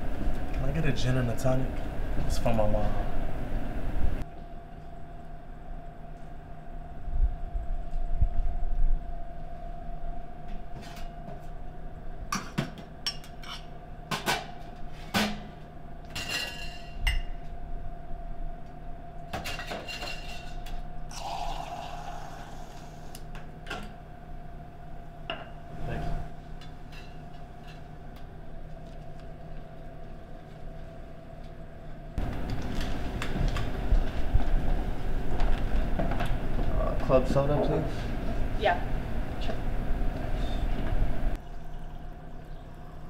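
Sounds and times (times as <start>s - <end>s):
steady low hum: 0.0s - 43.0s
drink pouring: 21.1s - 23.1s, 41.4s - 43.0s.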